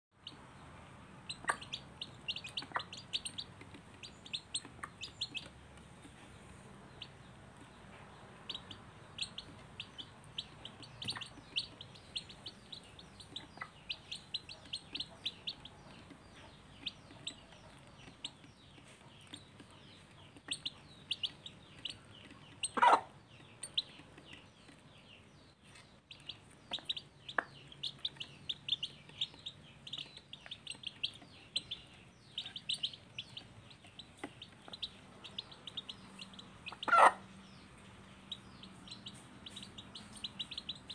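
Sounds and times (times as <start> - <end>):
chicks peeping: 0.2 - 40.9.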